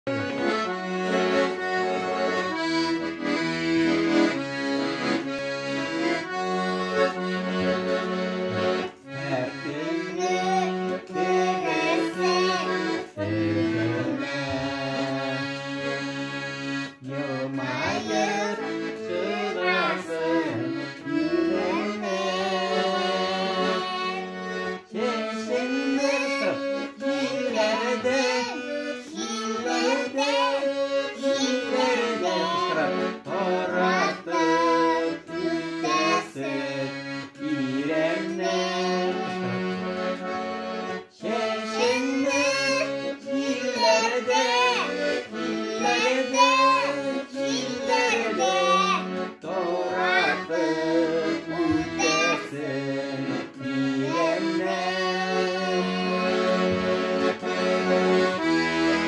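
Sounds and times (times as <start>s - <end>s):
accordion playing chords: 0.0s - 59.0s
child singing: 9.7s - 13.3s, 17.3s - 24.4s, 25.0s - 37.0s, 37.8s - 39.5s, 41.2s - 52.7s, 53.9s - 56.8s.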